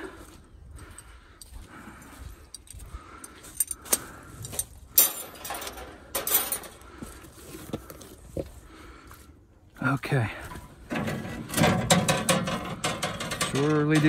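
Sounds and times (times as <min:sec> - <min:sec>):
metal parts clinking: 0:03.5 - 0:06.9.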